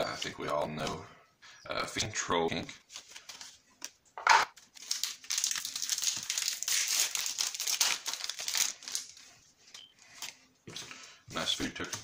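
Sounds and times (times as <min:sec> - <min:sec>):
foil wrapper crinkling: 0:04.6 - 0:10.4.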